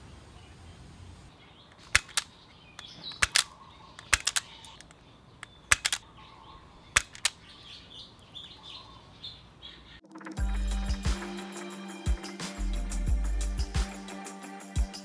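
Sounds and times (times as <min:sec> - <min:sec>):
wire stripper clicking: 0:01.7 - 0:06.0, 0:07.0 - 0:07.4.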